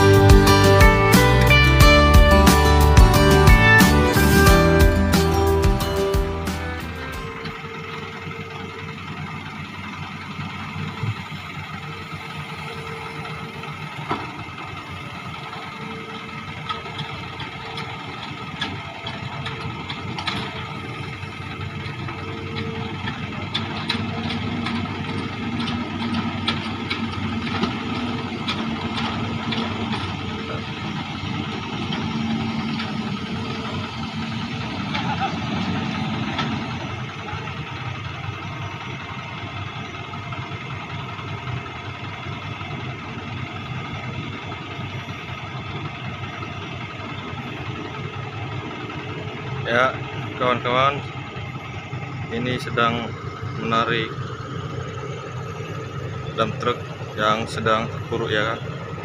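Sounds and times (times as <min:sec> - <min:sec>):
excavator diesel engine running: 0:00.0 - 0:59.0
knocks and clanks: 0:13.2 - 0:14.8, 0:15.4 - 0:39.0.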